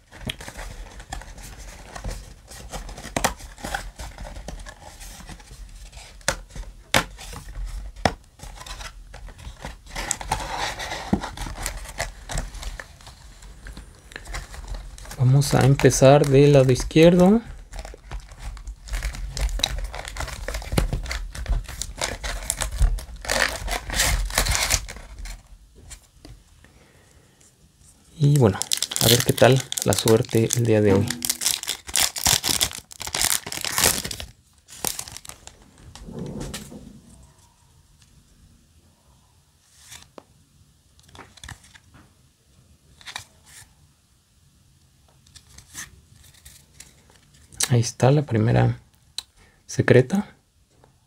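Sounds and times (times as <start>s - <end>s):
foil wrappers crinkling: 11.4s - 25.5s, 28.2s - 35.6s.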